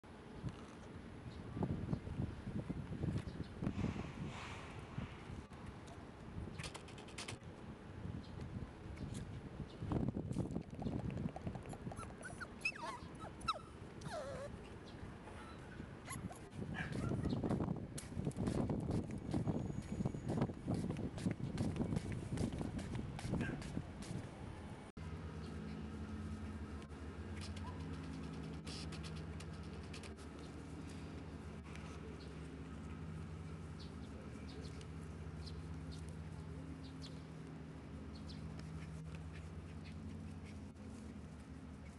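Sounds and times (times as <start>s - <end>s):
low rumbling noise: 3.6s - 6.5s
puppy whimpering: 11.5s - 14.6s
steady low hum: 18.6s - 41.9s.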